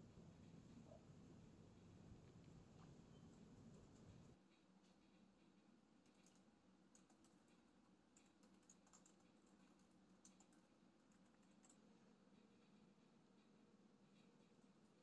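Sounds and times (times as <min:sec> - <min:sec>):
low room hum: 0:00.0 - 0:15.0
laptop keyboard clicks: 0:08.2 - 0:11.8.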